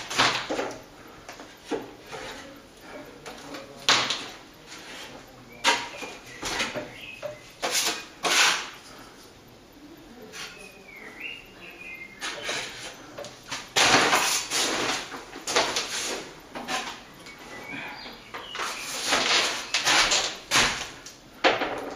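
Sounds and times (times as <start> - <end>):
steel knife scraping: 7.6 - 8.8.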